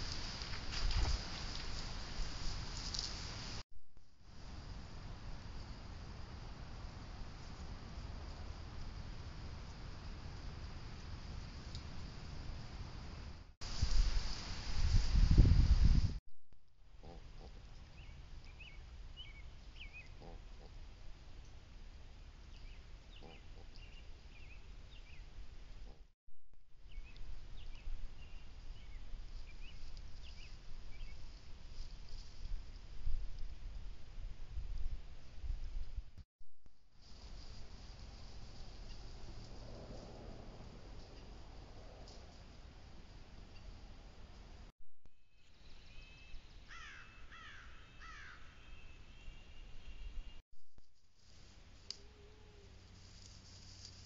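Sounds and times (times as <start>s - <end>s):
low rumble of wind: 0.0s - 16.2s, 16.8s - 44.7s
faint high thin bird calls: 45.3s - 50.4s.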